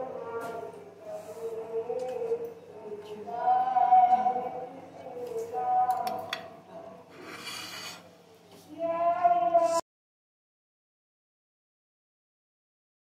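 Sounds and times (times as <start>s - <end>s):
person singing long notes: 0.0s - 7.0s, 8.7s - 9.8s.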